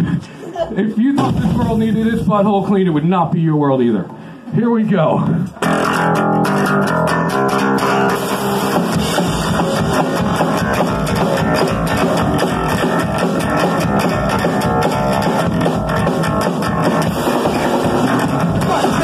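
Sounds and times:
rock drum beat: 1.2 - 2.6, 5.5 - 19.0
electric guitar playing: 5.4 - 19.0.

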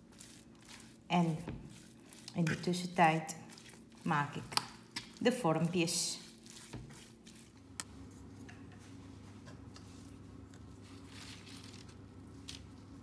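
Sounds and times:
fork working dough in pan: 0.0 - 8.9
low steady hum: 0.0 - 13.0
parchment paper rustling: 0.0 - 13.0.

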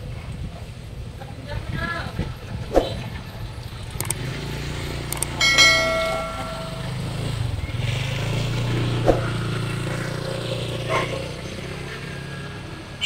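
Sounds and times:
vehicle engine humming: 2.8 - 12.8
bright bell ring: 5.2 - 7.4.

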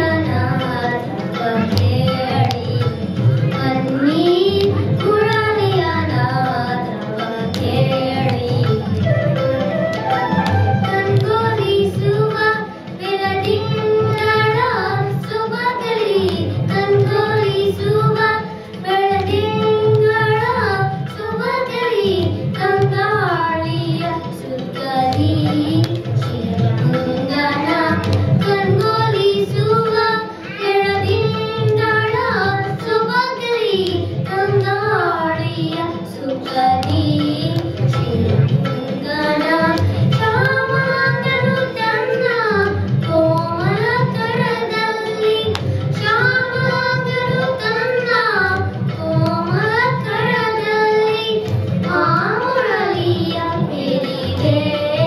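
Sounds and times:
low drum accompaniment: 7.6 - 14.6
girls singing: 10.1 - 55.0.

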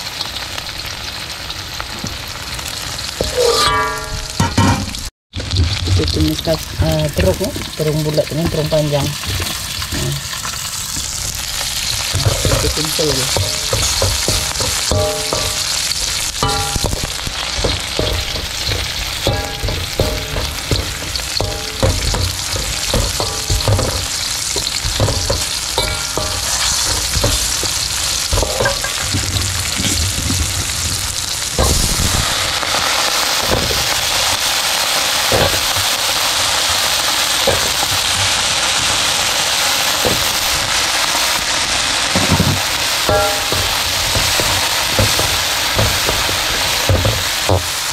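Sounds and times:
eggplant sizzling in oil: 0.0 - 47.9
spatula clanking against pan: 3.2 - 5.0, 12.0 - 30.0, 35.2 - 39.0, 42.2 - 47.8.

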